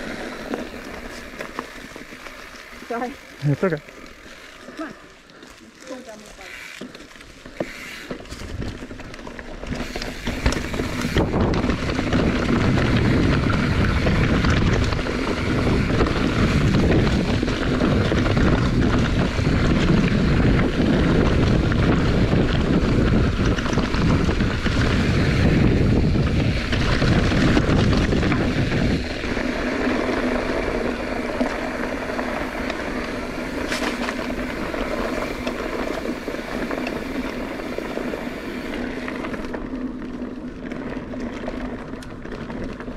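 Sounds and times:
wind rushing over microphone: 0:09.6 - 0:39.7.

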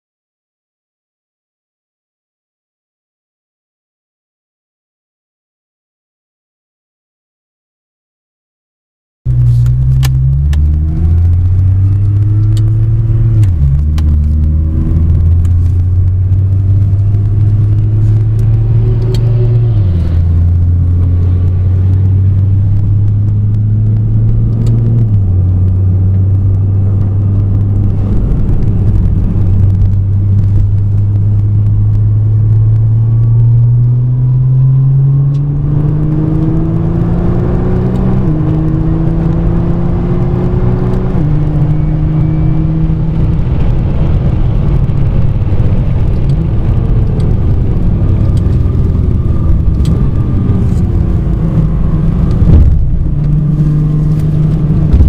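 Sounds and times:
car engine accelerating through gears: 0:09.3 - 0:55.0.

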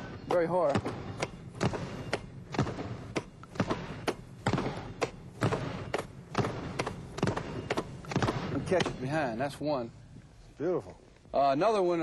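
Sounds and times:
basketball bouncing on floor: 0:00.3 - 0:09.0.

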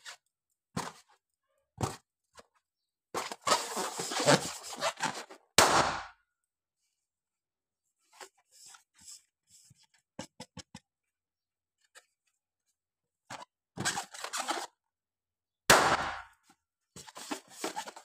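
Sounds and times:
rubbing balloon: 0:03.4 - 0:05.1.

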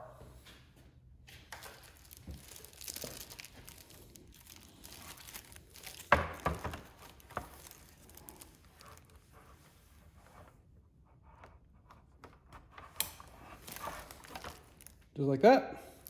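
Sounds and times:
plastic film crinkling: 0:01.5 - 0:09.6, 0:13.3 - 0:15.1
plastic parts knocking: 0:02.0 - 0:07.9.

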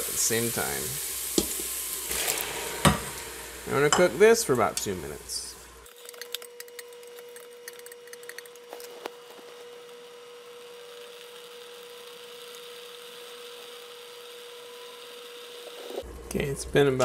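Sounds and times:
vegetables sizzling in a pot: 0:00.0 - 0:06.8, 0:07.7 - 0:16.1.

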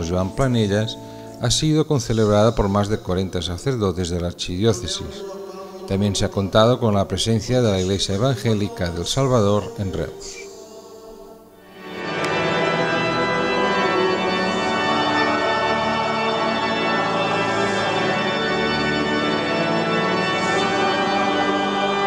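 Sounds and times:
organ playing chords: 0:00.0 - 0:22.0.

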